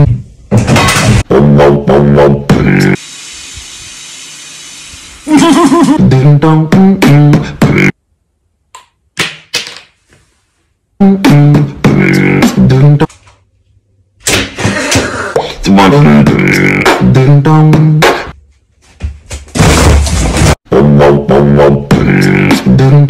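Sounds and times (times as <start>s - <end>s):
person beatboxing: 1.3s - 3.0s, 6.0s - 8.0s, 11.0s - 13.1s, 14.9s - 18.3s, 20.7s - 23.0s.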